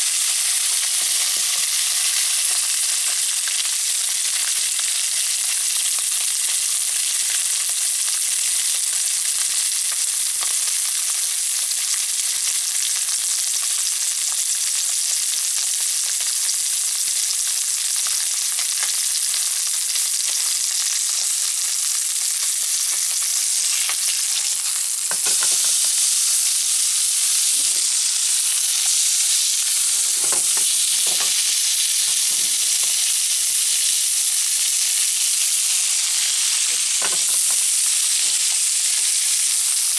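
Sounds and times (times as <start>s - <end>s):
meat sizzling in a frying pan: 0.0s - 39.9s
knocks of meat being turned: 23.8s - 26.3s, 27.4s - 33.1s, 36.7s - 37.9s.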